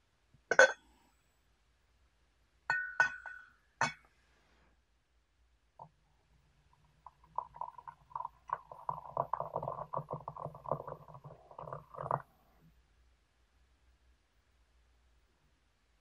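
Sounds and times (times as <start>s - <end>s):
water pouring into teapot: 7.0s - 12.3s.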